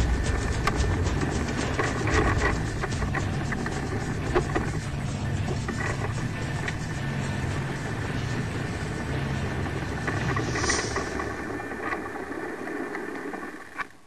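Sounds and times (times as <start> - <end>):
brief hiss: 10.1 - 12.1.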